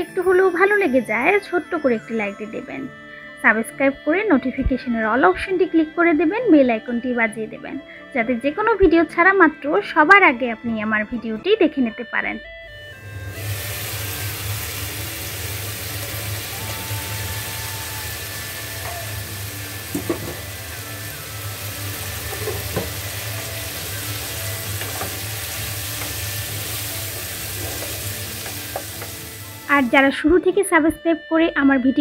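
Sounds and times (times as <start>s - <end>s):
food sizzling in a frying pan: 13.0s - 30.1s.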